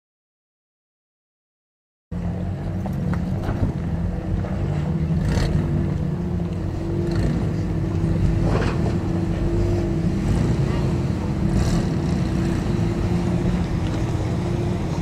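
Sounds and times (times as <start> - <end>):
truck engine running: 2.1 - 15.0.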